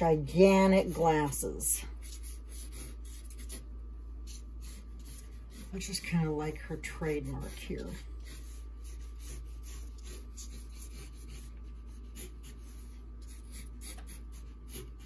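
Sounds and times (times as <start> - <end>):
low steady hum: 0.0 - 15.0
marker scratching on paper: 2.0 - 6.2, 7.2 - 15.0.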